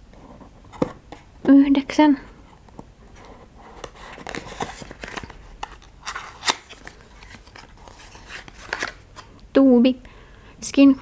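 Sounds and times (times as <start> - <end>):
cardboard scraping and rustling: 3.1 - 9.0.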